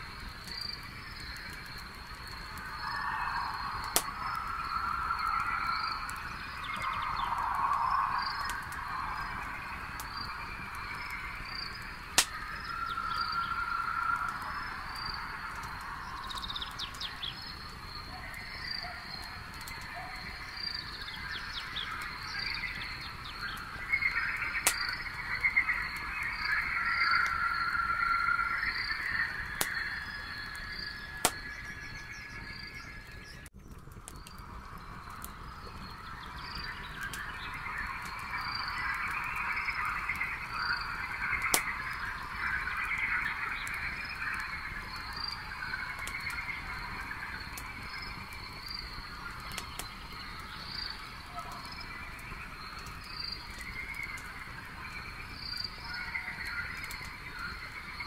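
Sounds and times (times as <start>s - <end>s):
insects chirping: 0.0s - 33.4s, 34.2s - 58.0s
frogs trilling: 0.0s - 33.5s, 34.1s - 58.0s
campfire crackling and popping: 0.0s - 58.0s.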